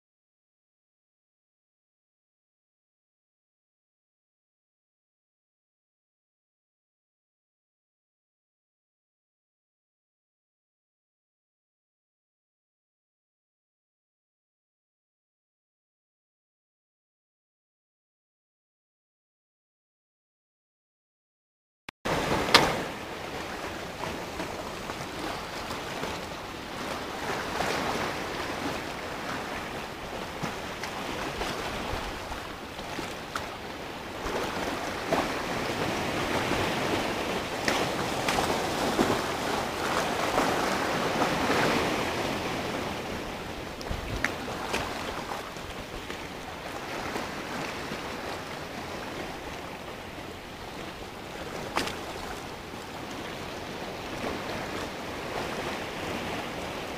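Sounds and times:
sea surf breaking over rocks: 22.1 - 56.9.

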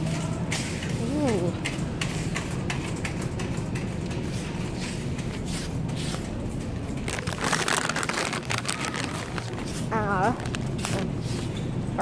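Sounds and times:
plastic chip bag crinkling: 7.0 - 11.2.

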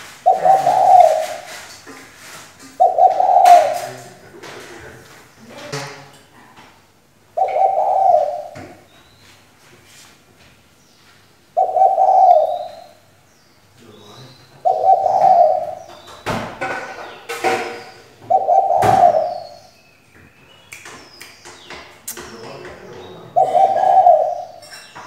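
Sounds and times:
dove cooing: 0.0 - 1.7, 2.7 - 4.8, 7.4 - 8.9, 11.6 - 13.0, 14.6 - 16.1, 17.4 - 19.7, 23.0 - 24.7
small birds chirping: 0.0 - 25.0
sharp knocks: 15.0 - 19.5.

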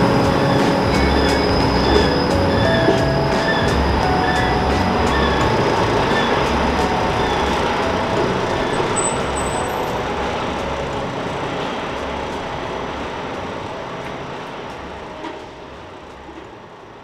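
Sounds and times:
streetcar wheels rumbling: 0.0 - 17.0.

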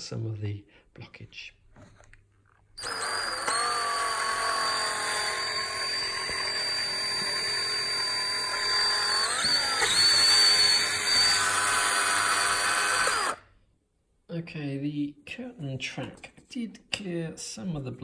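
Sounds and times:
cordless drill running: 2.8 - 13.4.

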